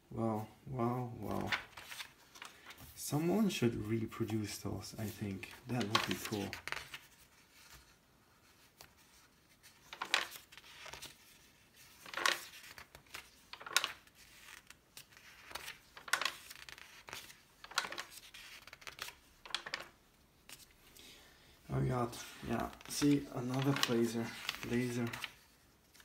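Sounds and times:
magazine pages turning: 1.2 - 21.1, 21.7 - 26.0.

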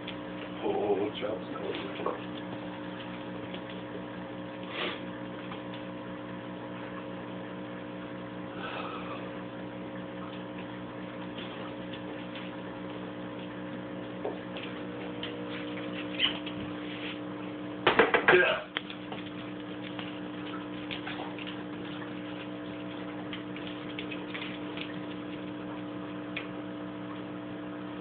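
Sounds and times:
steady electrical hum: 0.0 - 28.0.

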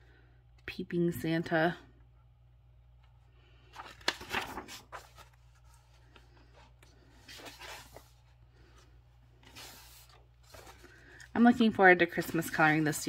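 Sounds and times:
paper pages rustling: 3.0 - 13.0.

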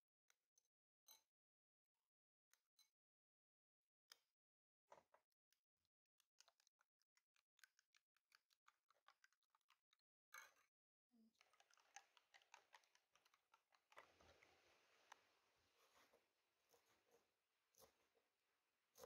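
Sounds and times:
spoon beating eggs in a bowl: 6.2 - 18.2.

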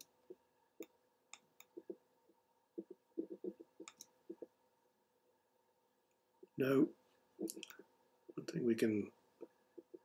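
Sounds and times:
computer mouse clicking: 2.8 - 4.5.

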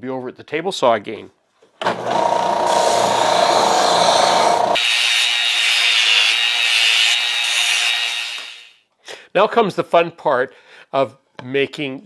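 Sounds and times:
belt sander sanding wood: 2.3 - 8.5.

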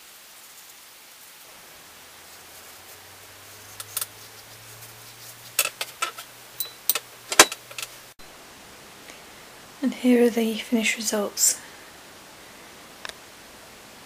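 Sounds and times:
sharp clicks and knocks: 5.5 - 8.0.

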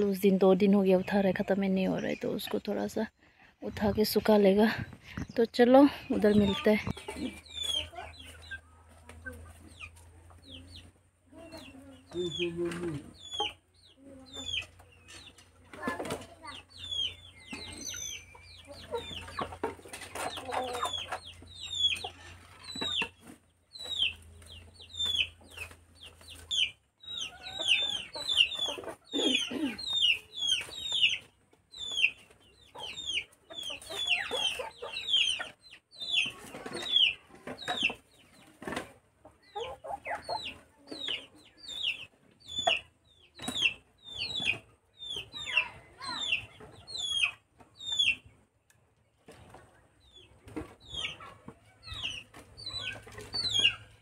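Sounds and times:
chickens clucking: 0.0 - 54.0.

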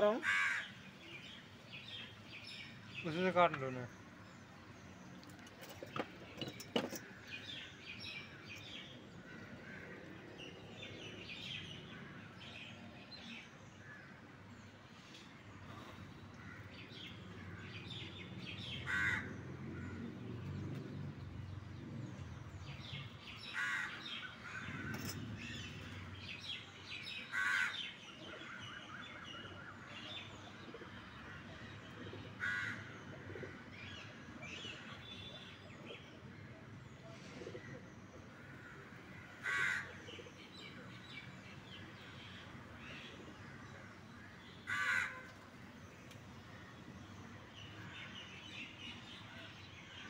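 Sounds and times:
crows cawing: 0.2 - 0.8, 18.8 - 20.0, 23.4 - 25.1, 27.3 - 27.9, 32.4 - 33.6, 38.4 - 40.2, 43.4 - 45.3.

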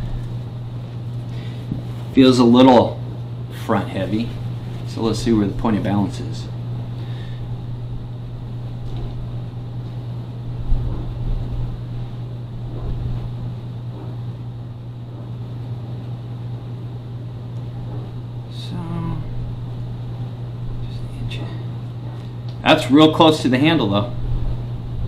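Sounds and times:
low room hum: 0.0 - 25.0.

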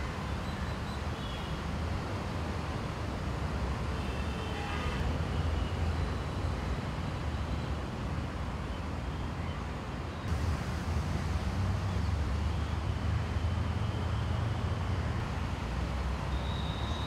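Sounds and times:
road traffic rumble: 0.0 - 17.0
outdoor hiss: 10.3 - 12.2.

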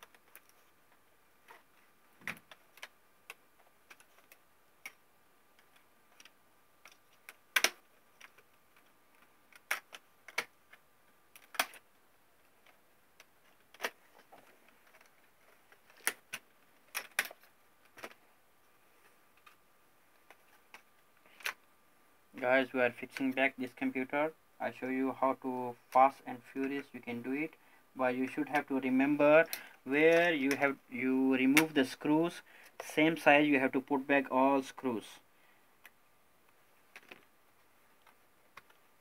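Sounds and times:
laptop parts clicking and tapping: 2.2 - 5.0, 5.6 - 11.9, 12.5 - 18.2.

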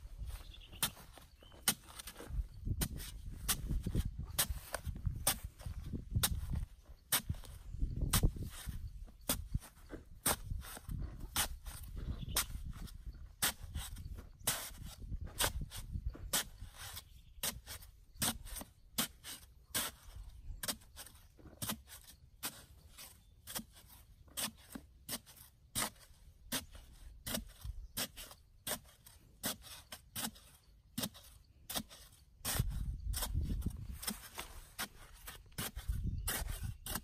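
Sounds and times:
digging tool chopping into soil: 1.6 - 22.7.

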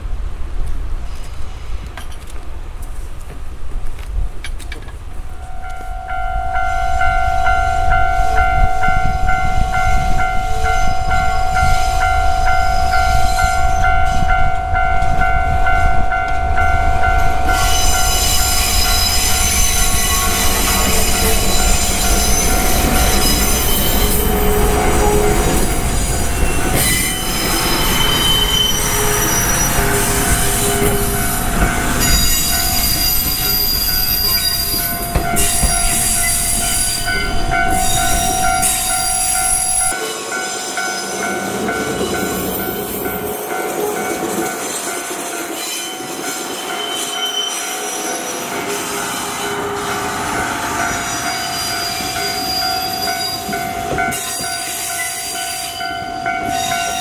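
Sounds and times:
diesel locomotive engine rumbling: 0.0 - 57.0
train wheel squeal: 5.4 - 15.9, 17.2 - 57.0
steady high tone: 5.4 - 44.6.

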